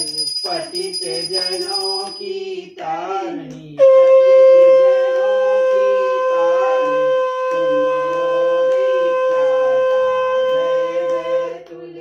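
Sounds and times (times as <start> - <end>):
devotional singing: 0.0 - 12.0
conch shell blown: 3.8 - 10.3.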